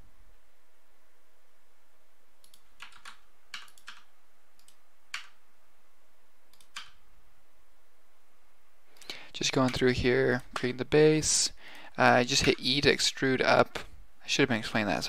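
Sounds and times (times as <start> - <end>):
faint steady hiss: 0.0 - 15.0
keyboard keys and mouse clicking: 2.4 - 5.4, 6.5 - 7.0.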